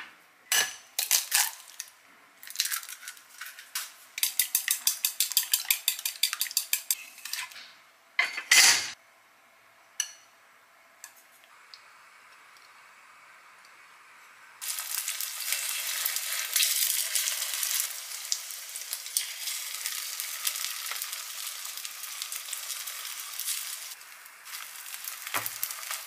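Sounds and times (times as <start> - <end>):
kitchenware clattering: 3.4 - 9.0
chopsticks beating eggs in glass bowl: 4.2 - 7.0.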